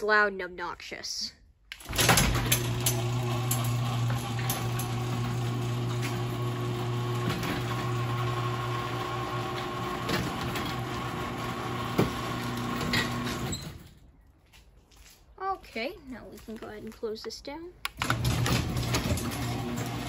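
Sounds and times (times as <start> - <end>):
chain and door rollers rattling: 1.8 - 6.5, 18.0 - 20.0
garage door opener motor hum: 1.8 - 14.0, 17.9 - 20.0.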